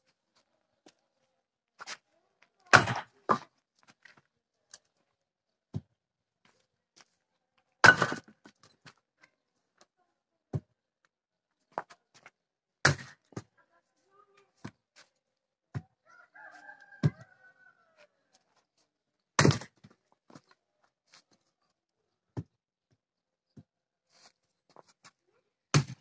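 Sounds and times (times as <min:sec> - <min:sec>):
axe chopping firewood: 0:02.6 - 0:03.6, 0:07.8 - 0:08.6, 0:12.8 - 0:13.5, 0:19.4 - 0:20.0, 0:25.7 - 0:26.0
rooster crowing: 0:16.0 - 0:18.2.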